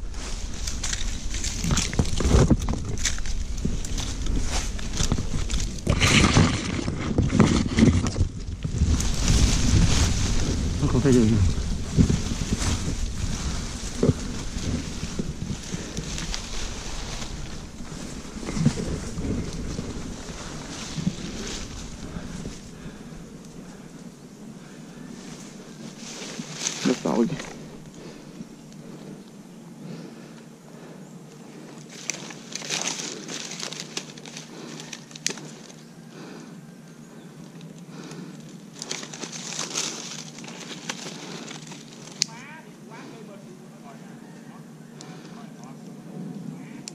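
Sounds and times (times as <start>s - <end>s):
wind buffeting microphone: 0.0s - 29.2s
scraping against bark: 0.0s - 36.6s, 37.5s - 45.7s
leafy branches rustling: 0.0s - 46.9s.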